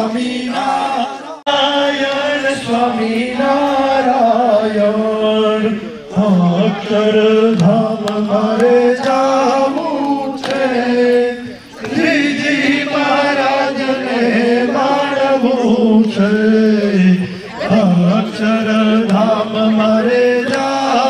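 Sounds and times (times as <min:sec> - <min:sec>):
chanting on long held notes: 0:00.0 - 0:21.0.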